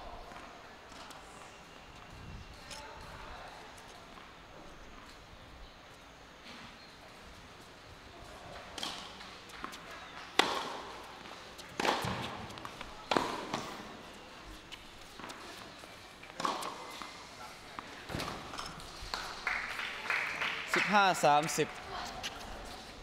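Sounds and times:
racket striking tennis ball: 10.4s - 11.0s, 11.8s - 13.8s, 16.4s - 17.1s
tennis ball bouncing: 10.4s - 13.9s, 16.3s - 17.1s.

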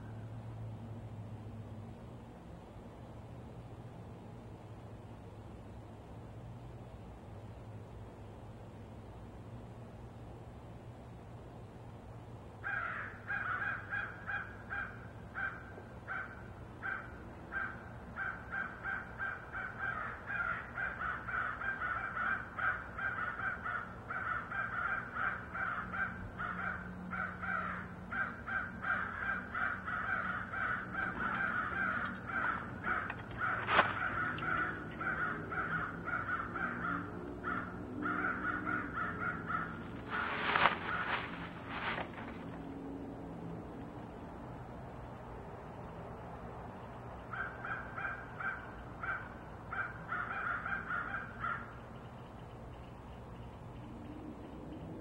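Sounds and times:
crows cawing: 12.6s - 42.5s, 47.3s - 51.8s.

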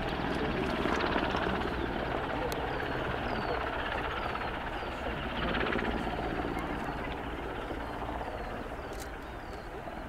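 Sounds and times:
helicopter flying: 0.0s - 10.0s.

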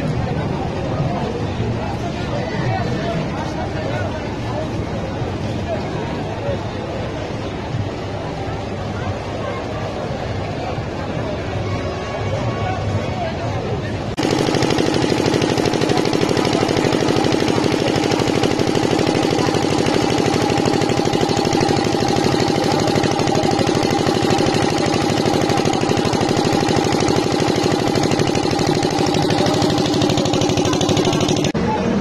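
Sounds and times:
engine running: 14.2s - 31.7s.

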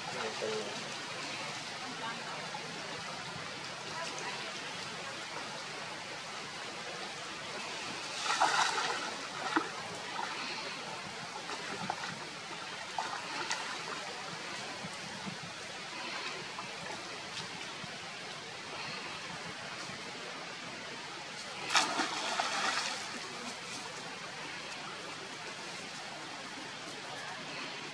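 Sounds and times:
water sloshing and trickling: 0.0s - 20.2s, 21.2s - 26.9s
small splashes: 7.6s - 10.8s, 21.6s - 24.0s.

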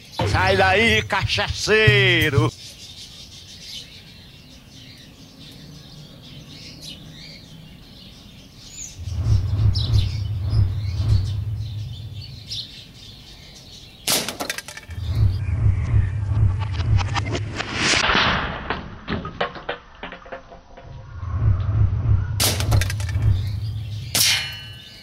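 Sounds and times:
small birds chirping: 0.0s - 16.6s, 22.5s - 25.0s
loud low rumble: 9.0s - 12.9s, 15.0s - 17.8s, 21.0s - 24.2s
can clattering on stones: 14.2s - 14.9s, 19.2s - 20.8s.

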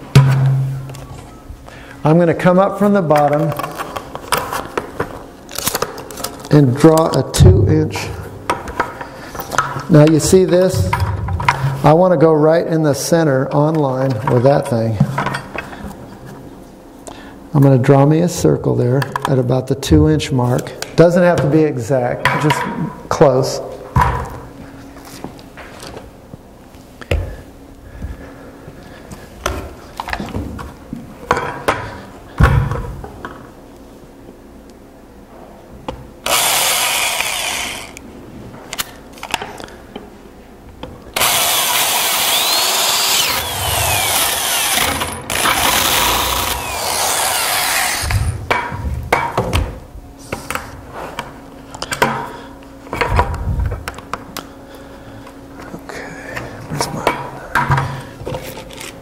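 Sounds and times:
electric drill cutting plastic: 36.2s - 38.0s, 41.2s - 48.4s.

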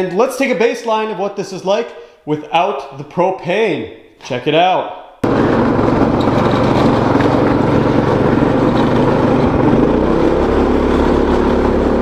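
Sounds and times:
go-kart engine running: 5.2s - 12.0s.

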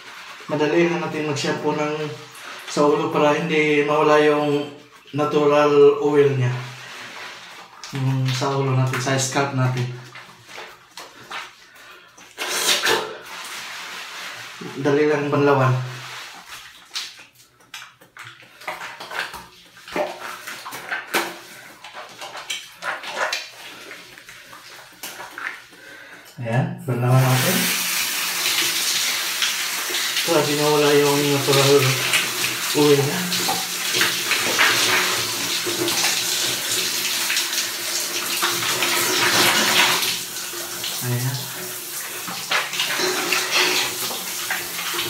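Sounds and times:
shower water splashing: 0.0s - 26.2s, 26.9s - 45.0s
hands scrubbing soapy skin: 6.4s - 26.1s.

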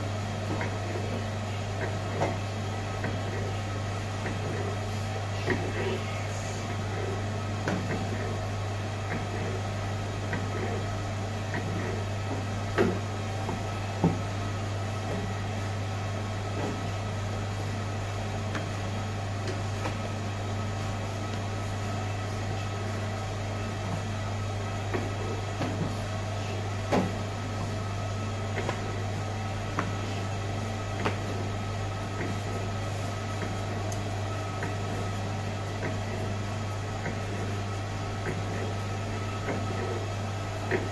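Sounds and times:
kitchen machinery hum: 0.0s - 40.9s
dough knocks and slaps: 19.4s - 20.1s, 30.9s - 31.3s.

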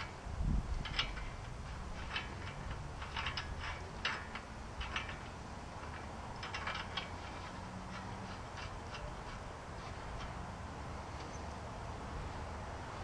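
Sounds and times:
light metallic clicks of wheel parts: 0.0s - 13.0s.

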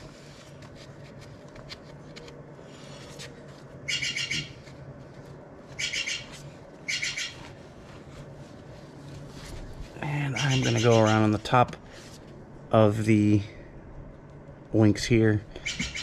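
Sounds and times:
jay squawking harshly: 10.2s - 11.4s.

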